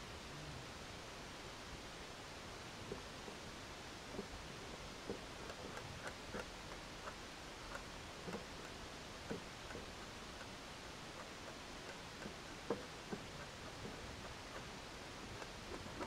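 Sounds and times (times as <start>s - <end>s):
faint steady hiss: 0.0s - 16.0s.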